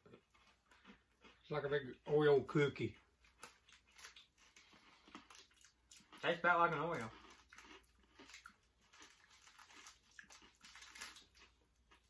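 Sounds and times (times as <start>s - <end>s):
cookie being chewed: 0.0s - 12.0s
snack wrapper crackling: 3.0s - 12.0s.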